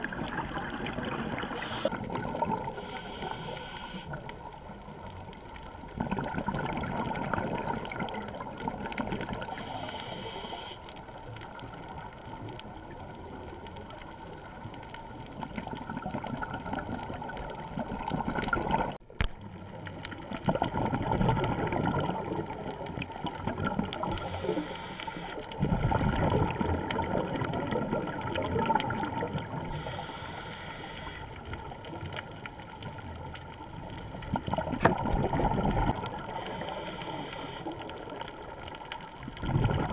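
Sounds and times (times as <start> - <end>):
bubbling exhalations underwater: 0.0 - 2.8, 5.9 - 9.5, 15.6 - 19.0, 20.3 - 24.2, 25.6 - 29.8, 34.2 - 36.4, 39.2 - 39.9
hissing regulator inhalations: 1.4 - 2.0, 2.7 - 4.2, 9.5 - 10.8, 24.1 - 25.4, 29.6 - 31.4, 36.3 - 37.8.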